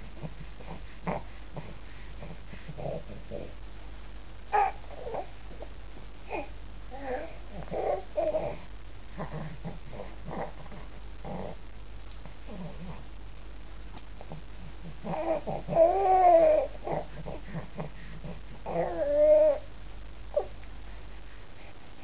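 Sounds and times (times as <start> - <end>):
baby whimpering cries: 4.5 - 5.3, 15.0 - 17.1, 18.6 - 19.7
baby grunting: 14.8 - 17.9.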